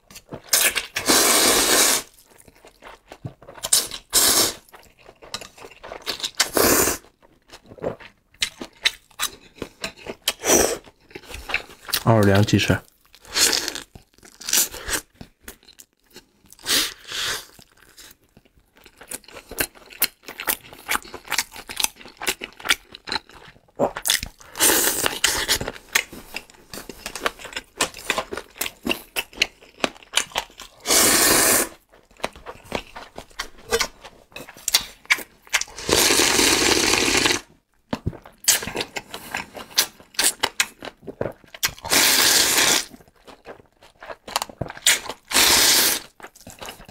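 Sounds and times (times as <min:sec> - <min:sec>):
noodle slurps: 0:00.9 - 0:02.1, 0:03.6 - 0:04.7, 0:30.8 - 0:31.8, 0:35.6 - 0:37.4, 0:41.8 - 0:43.0, 0:44.9 - 0:46.1
wet chewing and biting: 0:02.0 - 0:12.0, 0:12.9 - 0:30.8, 0:31.7 - 0:35.9, 0:36.8 - 0:46.9.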